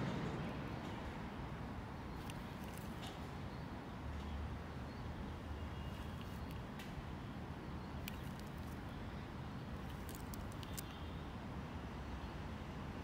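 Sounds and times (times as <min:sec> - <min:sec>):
faint sharp clicks: 0:09.8 - 0:11.0.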